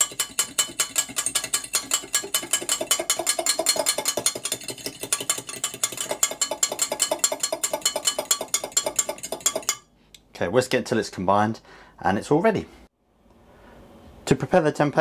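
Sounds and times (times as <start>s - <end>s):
fork whisking in glass jug: 0.0s - 9.8s.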